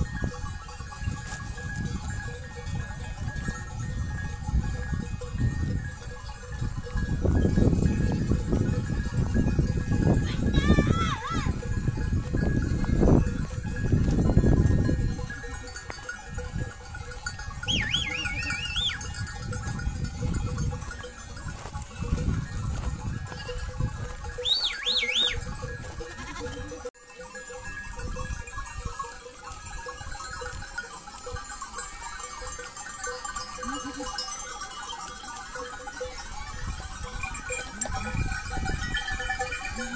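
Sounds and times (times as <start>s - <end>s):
sheep and goats bleating: 24.4s - 26.9s, 39.6s - 39.9s.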